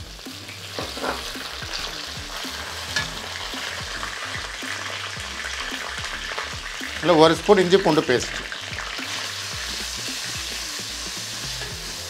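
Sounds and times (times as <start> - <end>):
onions sizzling in hot oil: 0.0 - 12.0
wooden spatula scraping a pan: 0.7 - 3.8.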